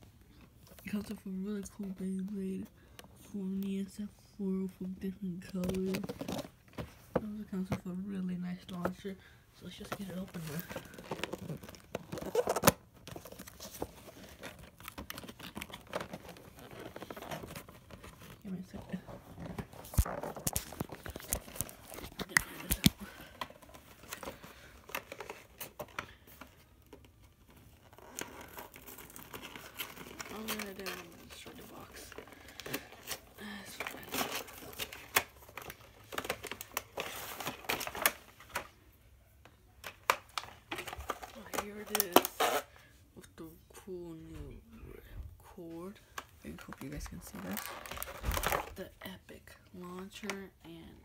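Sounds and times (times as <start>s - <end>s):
cardboard box rustling: 5.6s - 7.8s, 9.8s - 38.7s.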